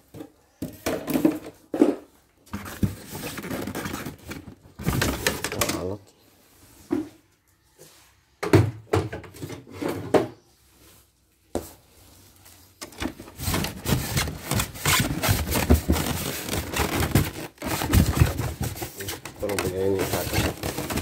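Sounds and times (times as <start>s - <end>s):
rubbing and scraping in box: 2.5s - 5.6s, 9.7s - 21.0s.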